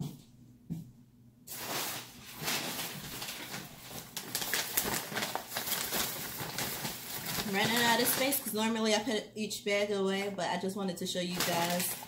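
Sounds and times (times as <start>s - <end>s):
plastic bags rustling: 1.5s - 8.8s, 11.2s - 12.0s.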